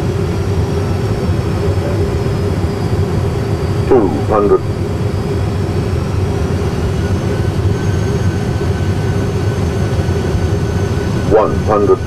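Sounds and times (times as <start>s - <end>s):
low rumble of engines and airflow: 0.0s - 12.0s
faint hum: 1.5s - 7.5s, 11.2s - 12.0s.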